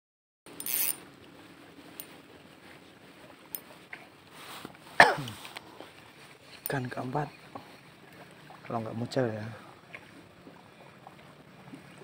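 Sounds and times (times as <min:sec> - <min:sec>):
fishing reel rasp: 0:00.6 - 0:01.0.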